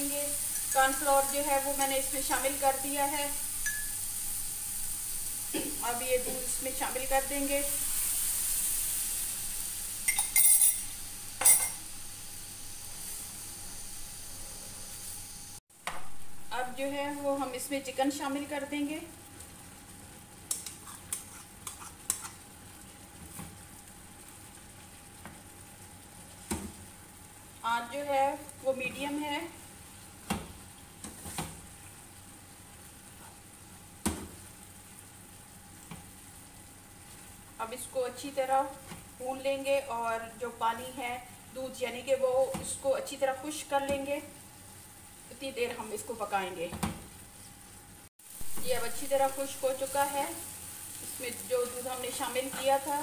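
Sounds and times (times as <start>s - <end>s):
milk sizzling in frying pan: 0.0s - 53.0s
utensils clinking against pan: 0.5s - 1.0s, 10.0s - 11.8s.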